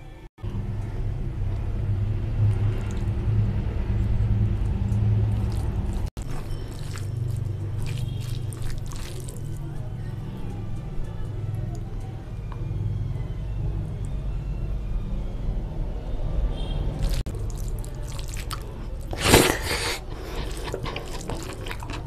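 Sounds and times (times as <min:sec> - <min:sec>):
fingers squishing wet rice: 0:04.6 - 0:11.9, 0:17.0 - 0:22.0.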